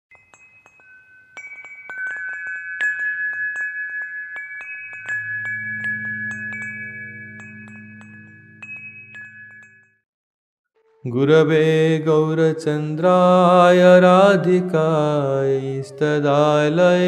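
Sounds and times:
wind chimes tinkling: 0:00.1 - 0:10.0
low steady drone: 0:05.1 - 0:09.5.

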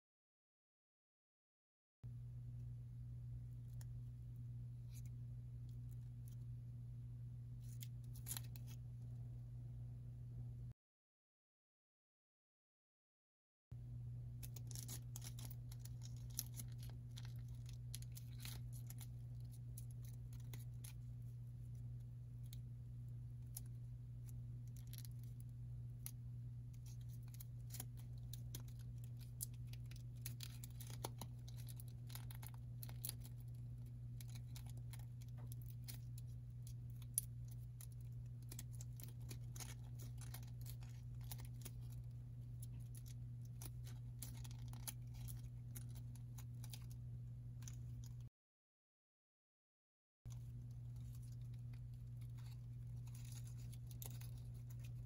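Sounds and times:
steady low hum: 0:02.0 - 0:10.8, 0:13.8 - 0:48.3, 0:50.3 - 0:55.0
paper crinkling and clicking: 0:07.6 - 0:08.8, 0:14.4 - 0:22.7, 0:23.3 - 0:48.3, 0:50.3 - 0:55.0.

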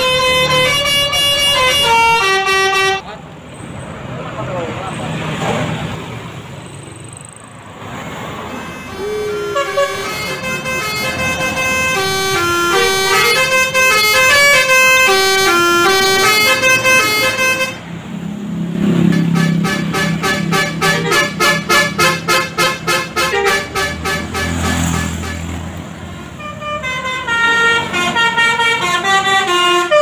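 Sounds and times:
multi-tone bus horn melody: 0:00.0 - 0:03.1, 0:08.4 - 0:18.0, 0:18.8 - 0:30.0
bus passing: 0:00.0 - 0:30.0.

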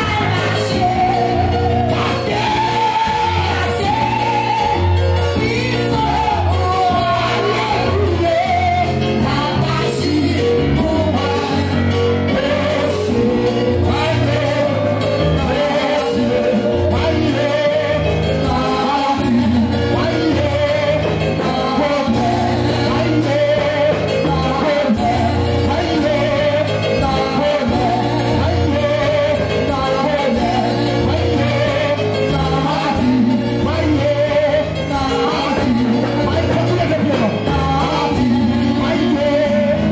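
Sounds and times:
bass line: 0:00.0 - 0:39.9
congregation singing: 0:00.0 - 0:39.9
steady percussion: 0:00.0 - 0:39.9.

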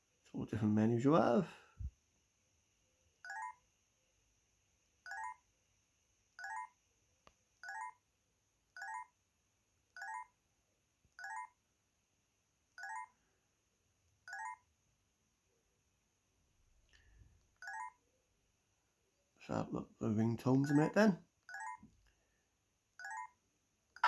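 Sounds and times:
phone key tone chirps: 0:03.3 - 0:03.6, 0:05.1 - 0:05.4, 0:06.4 - 0:06.7, 0:07.6 - 0:08.0, 0:08.8 - 0:09.1, 0:17.6 - 0:18.0, 0:21.5 - 0:21.8, 0:23.0 - 0:23.4.

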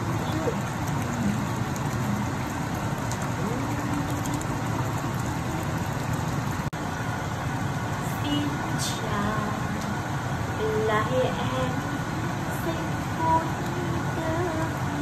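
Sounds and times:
curry bubbling in a pot: 0:00.0 - 0:08.1.

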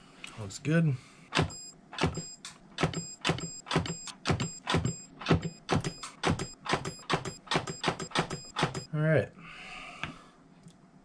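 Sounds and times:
spot welder snapping: 0:01.4 - 0:08.9.

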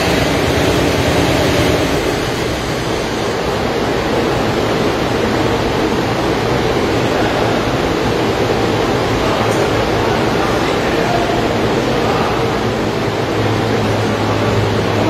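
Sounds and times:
tractor engine running rough: 0:00.0 - 0:15.0.

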